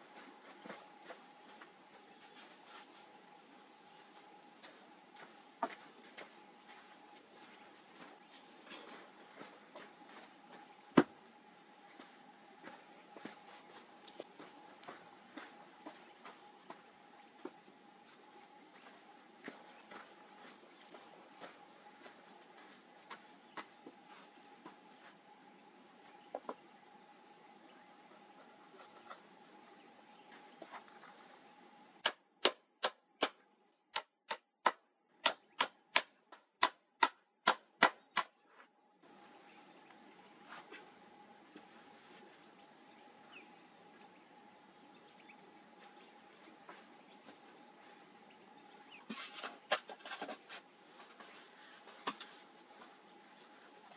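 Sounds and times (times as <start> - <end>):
crickets chirring: 0.0 - 53.9
wooden pole pounding hollow log: 32.0 - 38.3.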